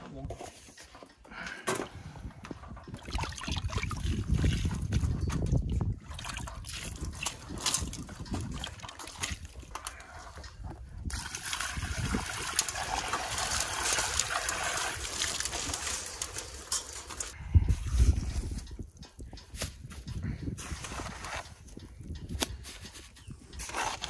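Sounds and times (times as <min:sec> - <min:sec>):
water sloshing in plastic bucket: 0:02.8 - 0:18.0
water trickling and splashing: 0:02.8 - 0:18.6
water pouring onto stone: 0:11.1 - 0:17.4.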